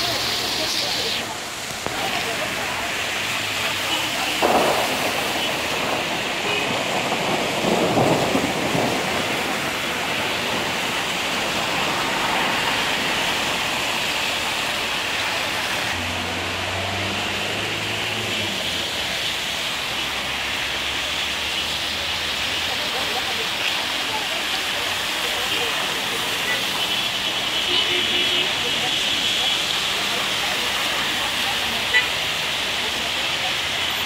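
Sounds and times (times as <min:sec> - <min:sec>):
rain and wind hiss: 0:00.0 - 0:34.0
thunder rumble: 0:01.6 - 0:20.8
passing vehicle engine hum: 0:14.8 - 0:21.2.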